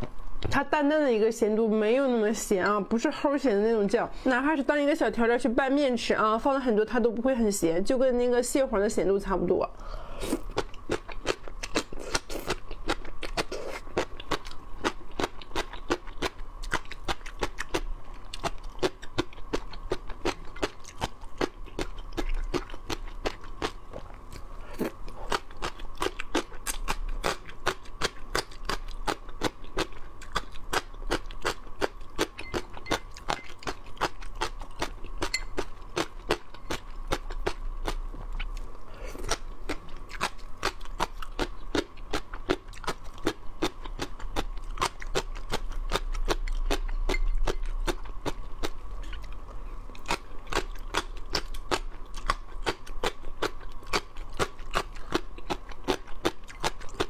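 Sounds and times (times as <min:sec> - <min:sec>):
crisp crunching and chewing: 0:10.3 - 0:57.0.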